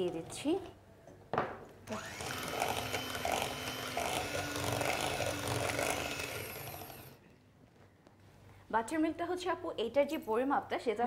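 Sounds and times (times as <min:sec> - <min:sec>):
electric hand mixer whisking: 0:01.9 - 0:07.2.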